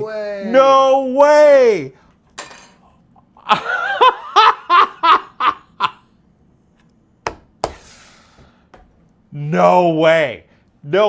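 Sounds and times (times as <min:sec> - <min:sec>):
man laughing: 0:03.2 - 0:06.1.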